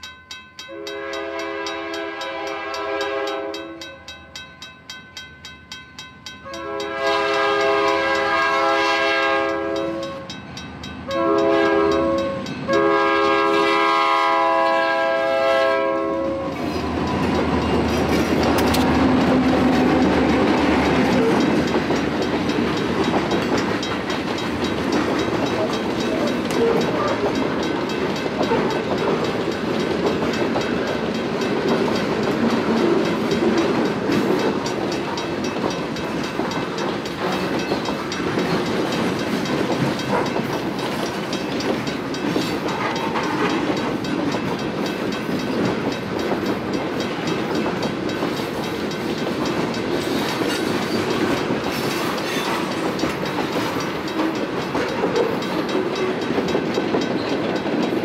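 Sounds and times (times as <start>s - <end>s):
locomotive air horn blasts: 0.7s - 3.8s, 6.5s - 10.3s, 11.1s - 16.6s.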